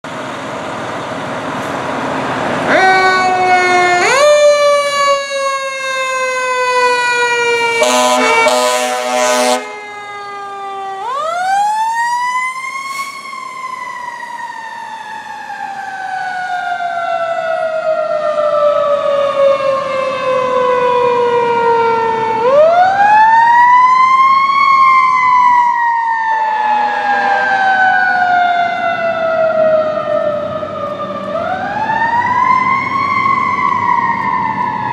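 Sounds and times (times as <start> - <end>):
horn blast: 7.6 - 9.8.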